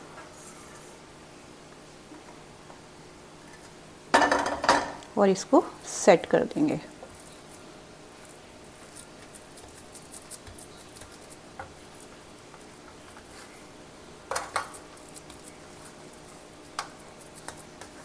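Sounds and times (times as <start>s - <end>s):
knocks on metal tray: 4.2s - 5.0s.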